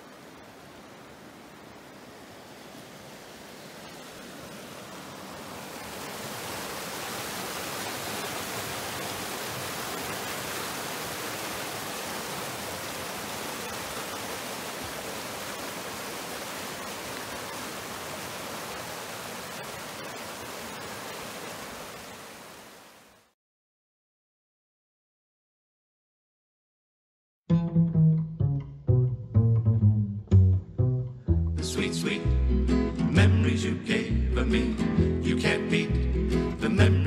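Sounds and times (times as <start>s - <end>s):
creek rushing over rocks: 0.0s - 23.3s.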